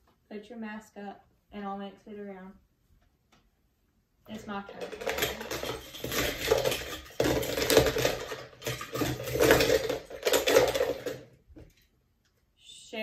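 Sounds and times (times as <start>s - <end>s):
toy cars clattering in a bowl: 4.3s - 11.9s.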